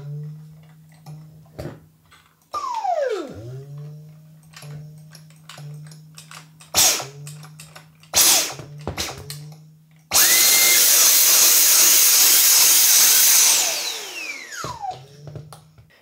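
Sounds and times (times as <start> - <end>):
low motor buzz: 0.0 - 1.7, 2.6 - 6.2
vacuum motor running: 2.6 - 6.0, 8.2 - 15.7.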